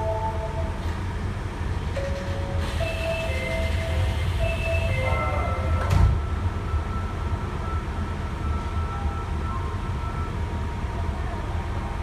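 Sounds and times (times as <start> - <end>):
two-tone door chime: 0.0 - 0.9, 2.0 - 10.4
train low hum: 0.0 - 12.0
train doors sliding shut: 0.4 - 6.4.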